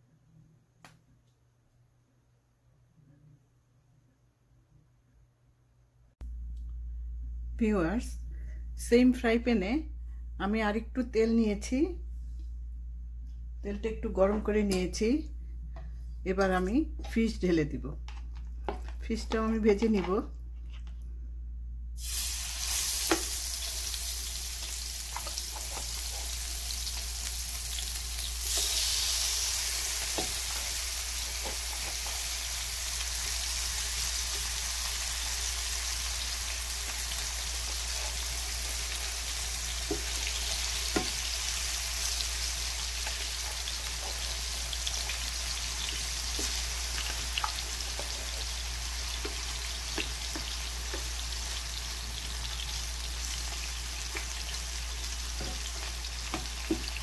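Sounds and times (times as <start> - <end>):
fish sizzling in hot oil: 22.0 - 57.0.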